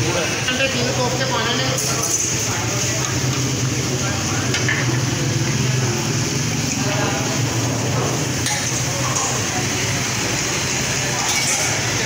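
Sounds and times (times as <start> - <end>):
steel ladles clinking on pots: 11.1 - 12.0.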